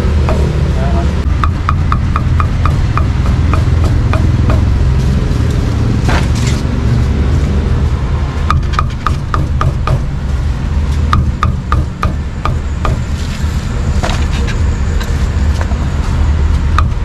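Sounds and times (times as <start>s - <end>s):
low traffic rumble: 0.0s - 17.0s
cleaver chopping meat: 1.4s - 4.9s, 8.5s - 10.1s.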